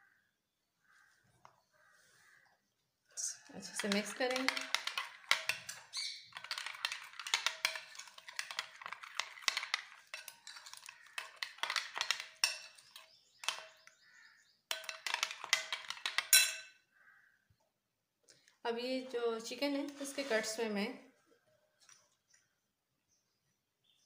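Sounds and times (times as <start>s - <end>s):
metal spoon scraping ceramic bowl: 3.5s - 13.8s, 14.7s - 16.7s.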